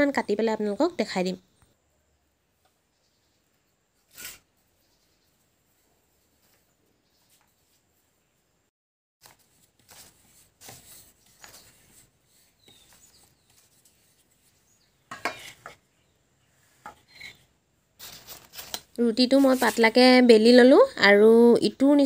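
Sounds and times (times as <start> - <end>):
rolling pin rolling dough: 9.2 - 15.9.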